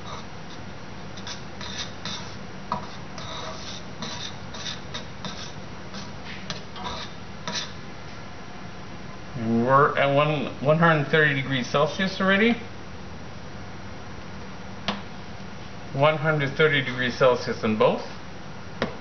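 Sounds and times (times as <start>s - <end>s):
rod scraping a saucepan: 0.0s - 0.3s, 1.2s - 7.8s
low steady hum: 0.0s - 19.0s.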